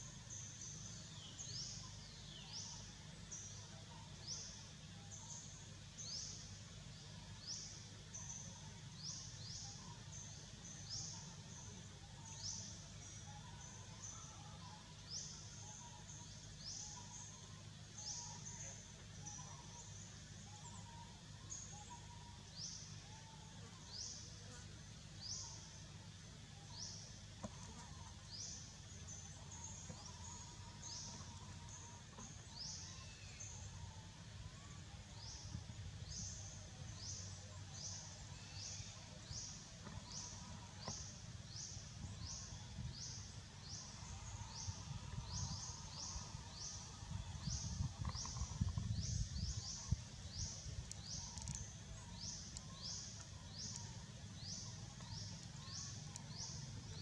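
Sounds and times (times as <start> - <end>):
wind rumble on microphone: 44.4 - 51.5.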